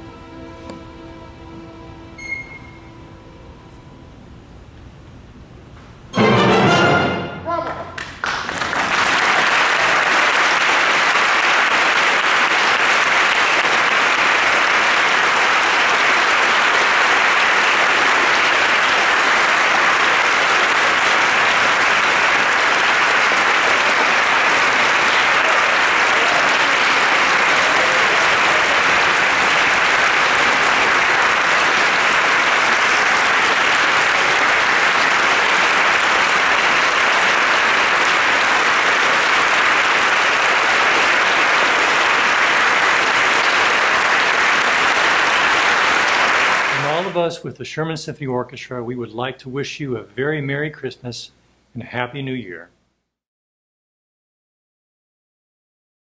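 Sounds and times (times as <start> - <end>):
audience applauding: 7.6 - 47.2.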